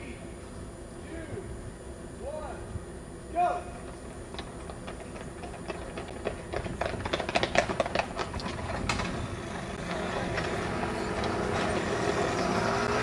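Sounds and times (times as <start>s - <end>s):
moped engines running: 4.6s - 13.0s.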